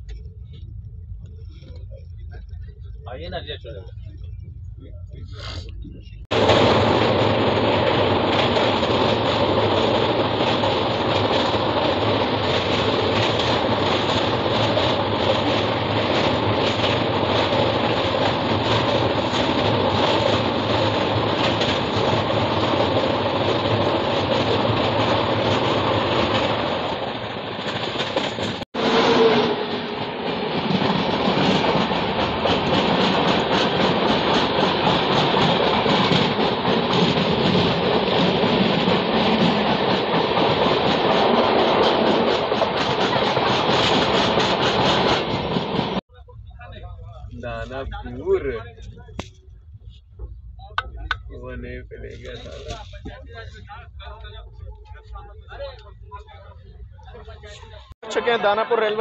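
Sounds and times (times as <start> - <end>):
train wheels rumbling on rails: 0.0 - 58.0
train passing close by: 6.0 - 46.2.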